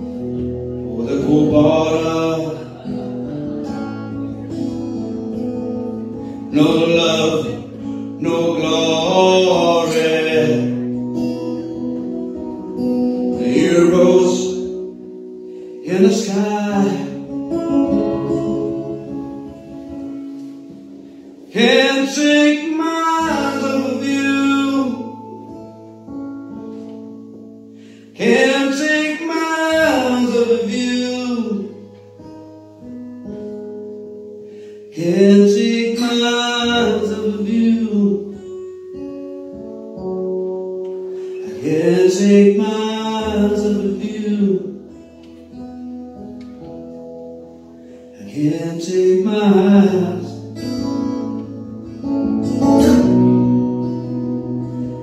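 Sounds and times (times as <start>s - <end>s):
acoustic guitar chords: 0.0s - 55.0s
man singing: 0.8s - 12.5s, 13.1s - 15.0s, 15.8s - 19.6s, 21.4s - 25.6s, 28.2s - 32.0s, 34.9s - 38.6s, 41.3s - 45.0s, 48.2s - 51.4s.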